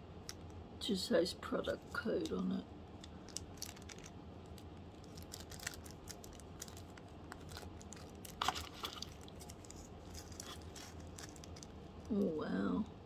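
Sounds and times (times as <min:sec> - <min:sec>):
plastic bags crinkling: 0:03.0 - 0:12.2.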